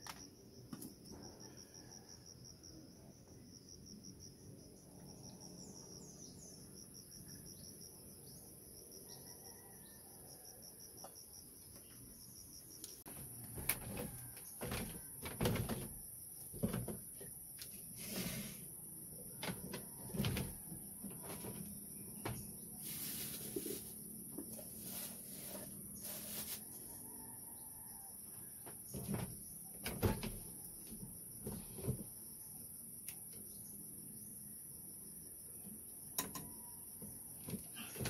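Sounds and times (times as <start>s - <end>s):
bare feet on bamboo floor: 13.1s - 17.3s, 20.2s - 26.8s.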